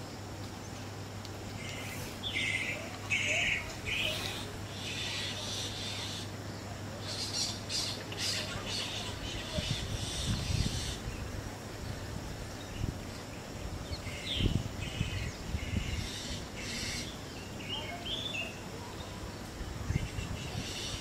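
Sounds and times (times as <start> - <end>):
owlets chattering calls: 1.6 - 6.3, 7.1 - 11.0.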